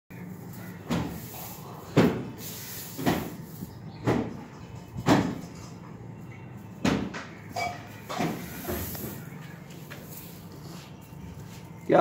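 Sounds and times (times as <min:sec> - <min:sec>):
broom sweeping concrete: 0:02.4 - 0:03.7, 0:08.3 - 0:09.3.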